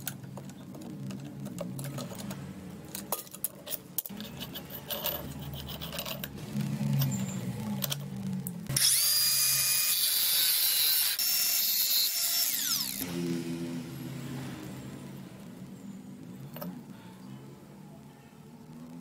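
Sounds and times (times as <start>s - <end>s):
angle grinder cutting pipe: 8.7s - 13.2s.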